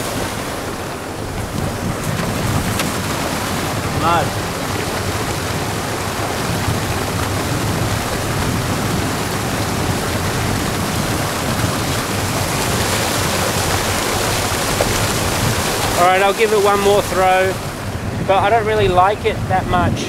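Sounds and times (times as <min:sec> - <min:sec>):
seawater surging among rocks: 0:00.0 - 0:20.0.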